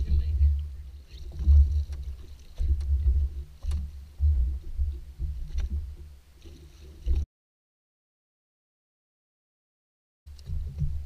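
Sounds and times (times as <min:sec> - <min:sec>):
wind and water rumbling on microphone: 0:00.0 - 0:07.2, 0:10.3 - 0:11.0.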